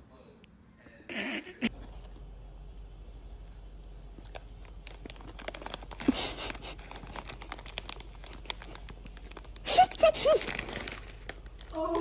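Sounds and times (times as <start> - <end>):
crinkling and rustling: 3.2 - 12.0.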